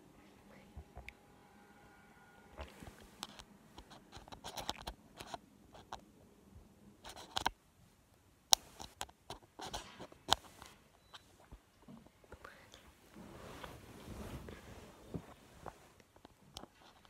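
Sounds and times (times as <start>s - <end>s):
phone handling scratching and rustling: 2.6s - 6.0s, 7.0s - 7.5s, 8.6s - 11.3s.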